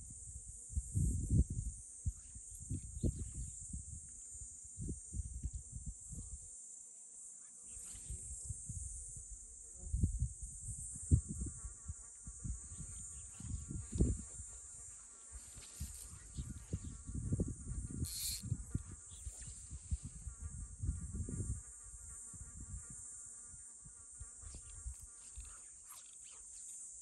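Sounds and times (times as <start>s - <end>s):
high-pitched insect chorus: 0.0s - 27.0s
wind buffeting microphone: 0.8s - 4.1s, 8.1s - 14.8s, 15.4s - 23.0s
close wavering buzz: 7.3s - 27.0s.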